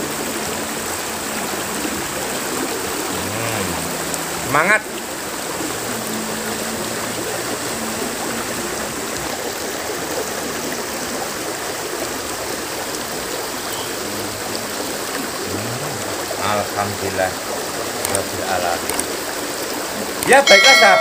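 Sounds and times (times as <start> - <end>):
river water rushing: 0.0 - 21.0.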